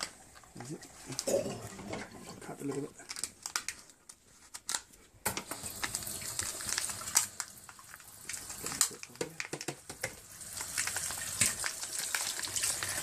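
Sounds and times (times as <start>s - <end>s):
tap water running and splashing: 5.3s - 13.0s
small clicks and knocks: 8.2s - 12.2s.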